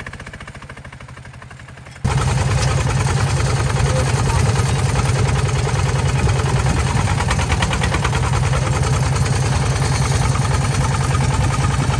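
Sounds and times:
diesel engine running: 0.0s - 11.9s.

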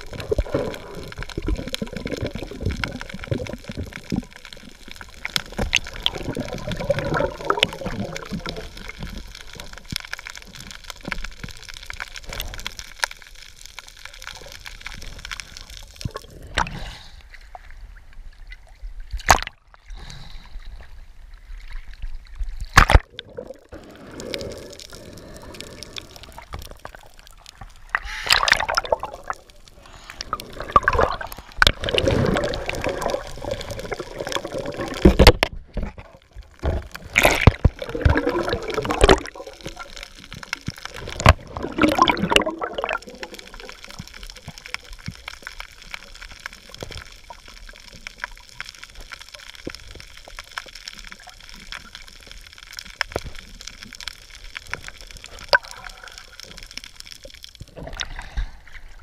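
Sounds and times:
bubbling bursts: 0.0s - 10.6s, 22.7s - 35.4s, 36.1s - 45.1s
water sloshing and gurgling: 0.0s - 59.0s.

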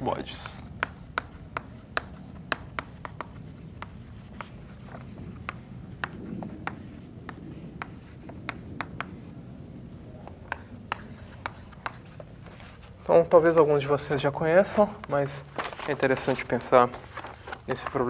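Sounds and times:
chalk tapping and scratching on chalkboard: 0.3s - 9.3s, 10.5s - 13.5s.

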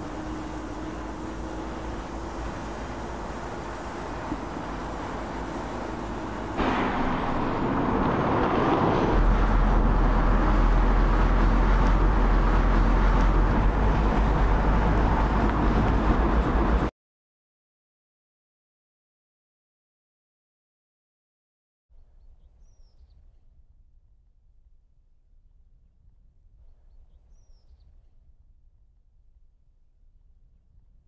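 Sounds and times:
car engine hum: 0.0s - 16.9s
deep rumble: 0.0s - 16.9s.

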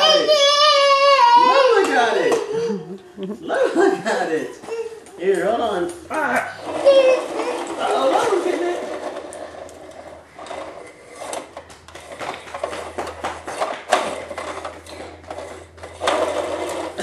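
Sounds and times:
plastic toy truck on hardwood floor: 6.6s - 17.0s.

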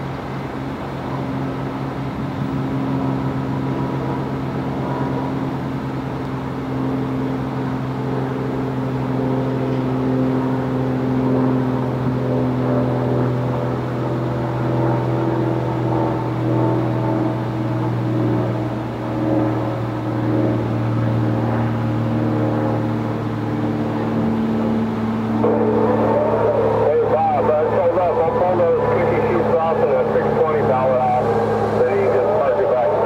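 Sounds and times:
low engine drone: 0.0s - 33.0s
steady tone: 8.3s - 33.0s.

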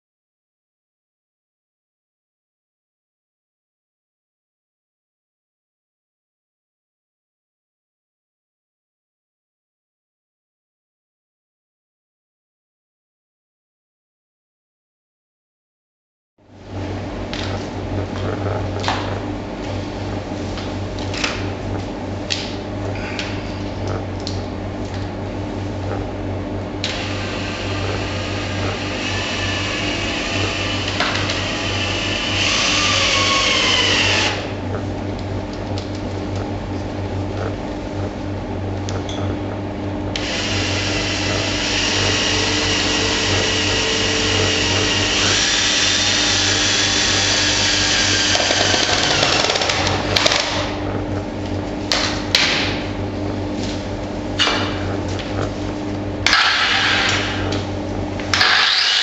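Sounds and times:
steady low hum: 16.4s - 58.5s
cordless drill whining: 26.8s - 34.5s, 40.2s - 49.7s, 58.3s - 59.0s.

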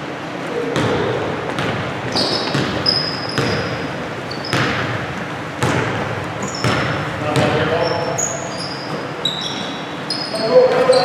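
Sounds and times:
sneaker squeaks: 0.5s - 11.0s
basketball bouncing on wooden floor: 0.8s - 8.2s.

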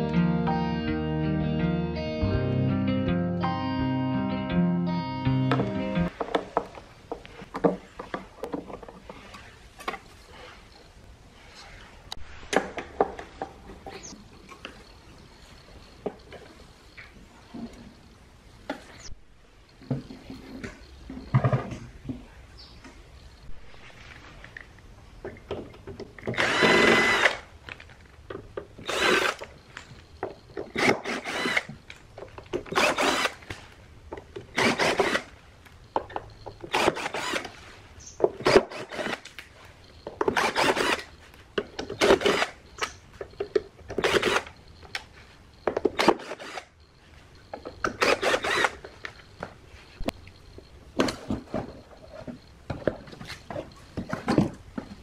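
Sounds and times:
drill backing out screws: 26.2s - 27.4s, 28.8s - 29.5s, 30.6s - 31.8s, 32.6s - 33.5s, 34.5s - 35.3s, 36.6s - 37.6s, 38.4s - 39.3s, 40.2s - 41.1s, 41.9s - 42.9s, 43.9s - 44.6s, 45.8s - 46.7s, 47.8s - 48.9s.

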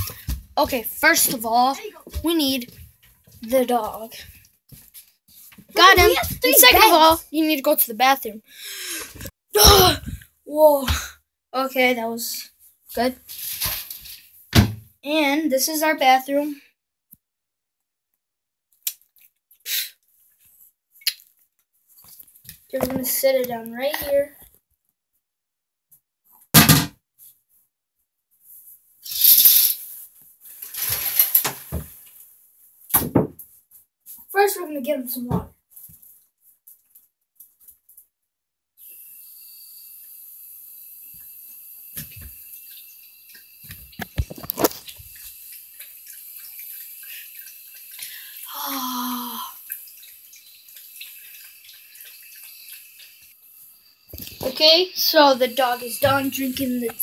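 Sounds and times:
rustling and scraping: 28.6s - 32.2s.

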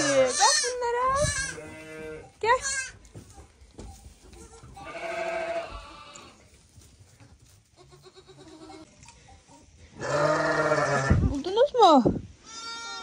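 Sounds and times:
goat bleating: 0.0s - 3.0s, 4.3s - 6.4s, 7.8s - 8.9s, 10.0s - 11.2s, 12.4s - 13.0s.

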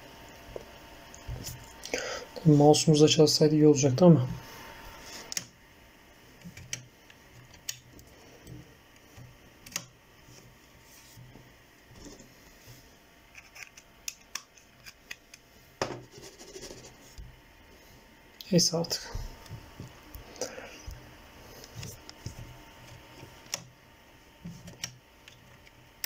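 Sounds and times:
light scratchy rubbing: 16.0s - 17.2s.

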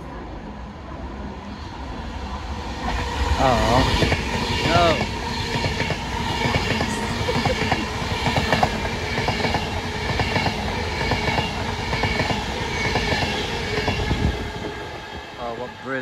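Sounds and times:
train wheels clattering on rails: 3.8s - 14.8s.

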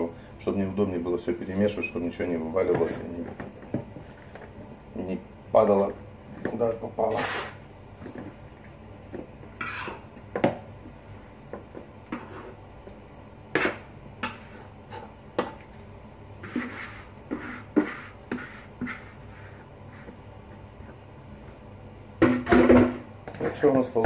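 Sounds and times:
utensil scraping a mixing bowl: 12.1s - 12.6s, 16.4s - 20.2s.

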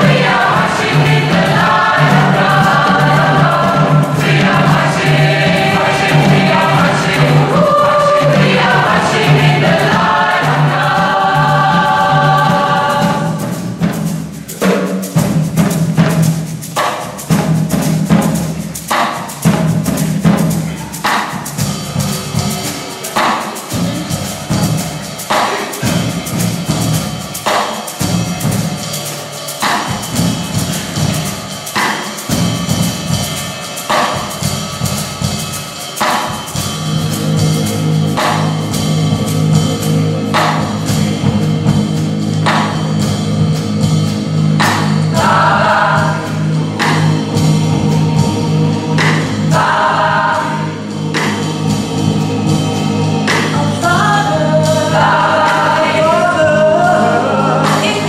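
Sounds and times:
bass line: 0.0s - 14.6s, 36.6s - 58.0s
drum hits: 0.0s - 54.0s
live band playing gospel: 0.0s - 58.0s.

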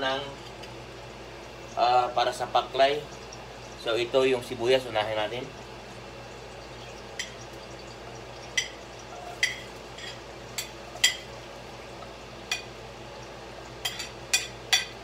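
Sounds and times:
spoon clinking on dishware: 8.6s - 11.3s, 13.8s - 15.0s.

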